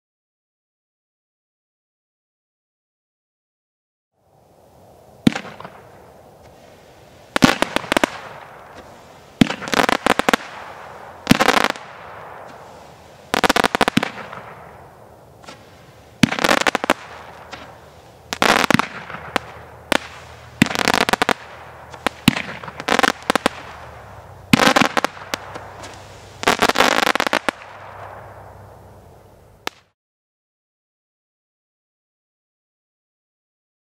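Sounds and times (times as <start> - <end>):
crackling firework stars: 4.2 - 30.0
firework cake bangs: 7.3 - 28.4.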